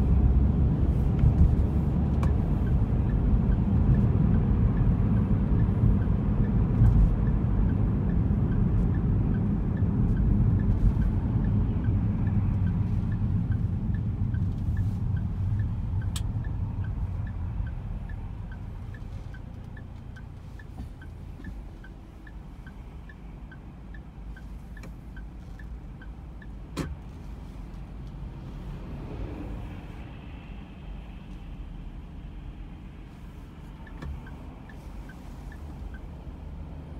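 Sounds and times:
car road and engine rumble: 0:00.0 - 0:36.9
light regular ticking: 0:01.5 - 0:28.5, 0:33.0 - 0:36.9.

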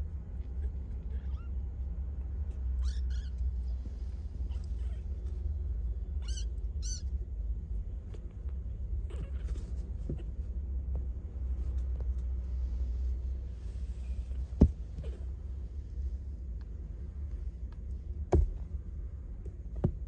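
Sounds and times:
kitten mewing: 0:02.6 - 0:03.4, 0:06.0 - 0:07.2, 0:09.0 - 0:10.4.

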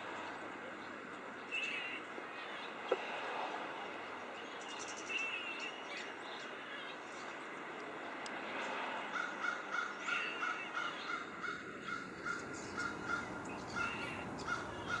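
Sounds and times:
crow cawing rapidly: 0:09.1 - 0:15.0.

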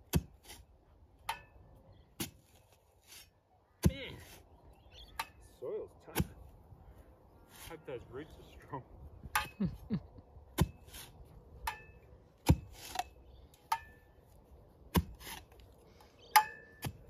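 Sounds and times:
dirt scraping: 0:00.0 - 0:06.6, 0:07.4 - 0:08.8, 0:10.5 - 0:17.0
metal spade striking hard soil: 0:10.6 - 0:14.2, 0:16.3 - 0:17.0.

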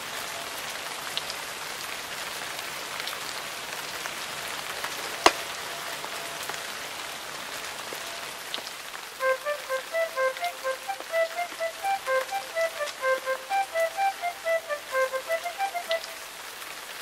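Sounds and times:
rain falling: 0:00.0 - 0:17.0
melody of short notes: 0:09.2 - 0:16.2.

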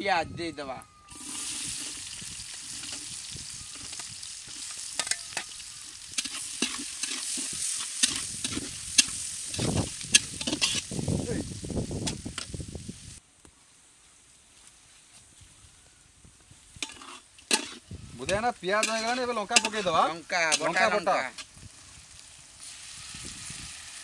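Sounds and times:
ladle scraping a pan: 0:01.1 - 0:10.9, 0:16.8 - 0:21.5
onions sizzling in oil: 0:01.1 - 0:13.2, 0:16.7 - 0:24.0.

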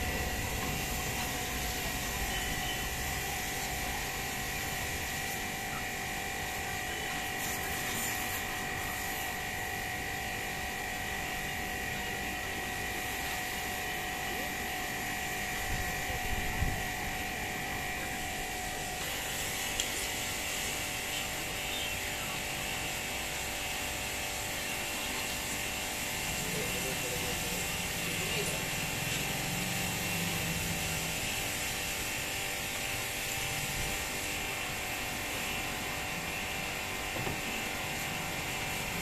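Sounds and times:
water jet spraying: 0:00.0 - 0:09.4, 0:12.9 - 0:39.0
pressure washer motor humming: 0:00.0 - 0:39.0.

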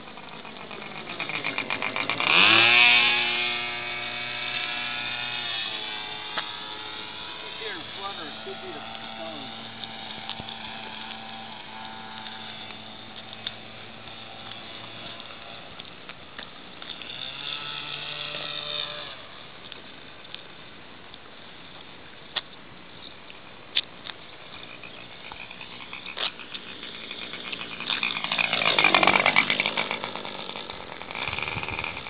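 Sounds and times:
model airplane motor humming: 0:00.0 - 0:22.2, 0:23.1 - 0:32.0
sharp clicks: 0:12.1 - 0:17.1.

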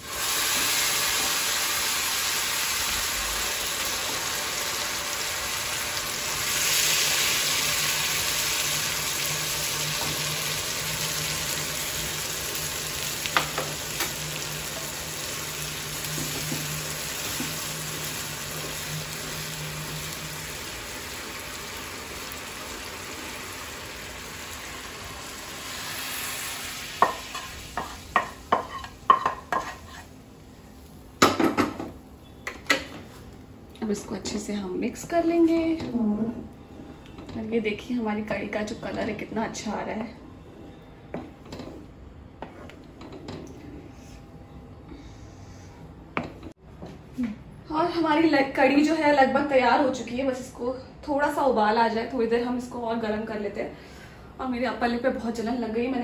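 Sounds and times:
hot oil sizzling: 0:00.0 - 0:30.0.

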